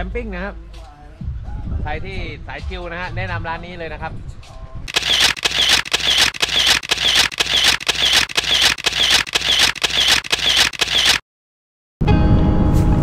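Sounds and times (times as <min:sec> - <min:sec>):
rapid mechanical clicks: 0:04.9 - 0:11.2.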